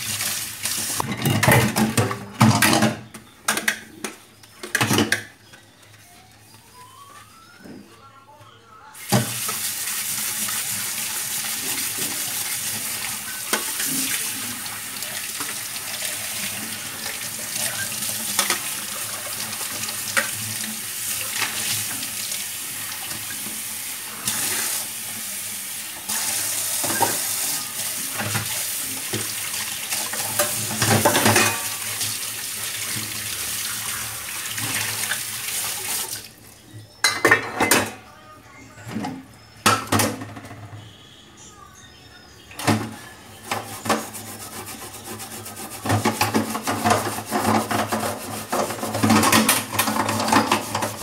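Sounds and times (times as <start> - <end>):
water running from tap into sink: 0.0 - 1.0, 9.0 - 36.4, 43.5 - 51.0.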